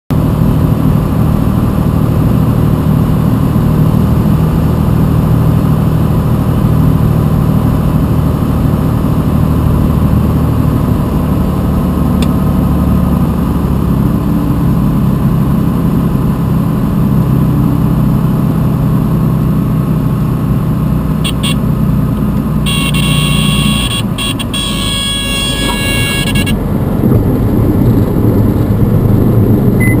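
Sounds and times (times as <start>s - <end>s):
propeller airplane engine: 0.1s - 30.0s
stall warning horn: 21.2s - 21.7s, 22.6s - 26.7s.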